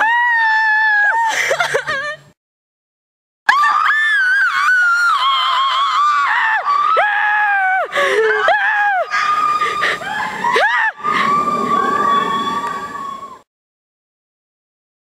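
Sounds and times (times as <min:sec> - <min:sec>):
girls screaming: 0:00.0 - 0:01.3, 0:03.5 - 0:13.5.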